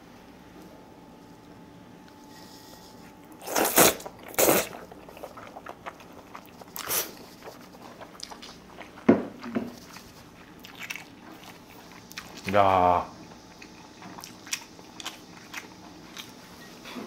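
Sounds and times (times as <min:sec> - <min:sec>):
mouth chewing sounds: 0:03.3 - 0:12.6, 0:13.2 - 0:16.6
person slurping noodles: 0:03.4 - 0:05.7.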